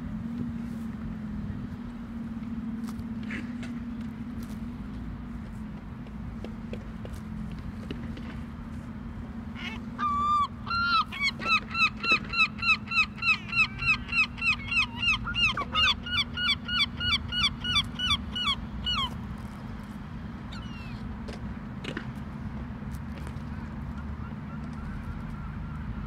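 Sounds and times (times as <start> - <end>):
gull yelping calls: 9.6 - 19.1.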